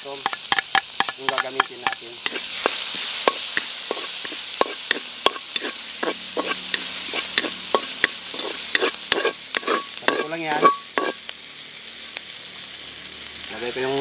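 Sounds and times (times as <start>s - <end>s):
onions sizzling in a wok: 0.0s - 14.0s
spatula scraping a pan: 0.2s - 11.2s.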